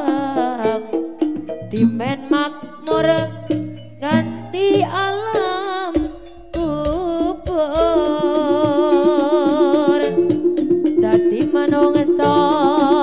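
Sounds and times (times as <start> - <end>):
wavering ensemble melody: 0.0 - 13.0.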